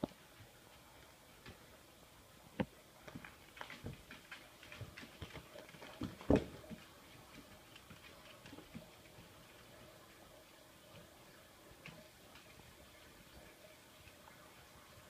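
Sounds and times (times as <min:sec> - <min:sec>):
claws clicking on tile floor: 0:03.1 - 0:08.9.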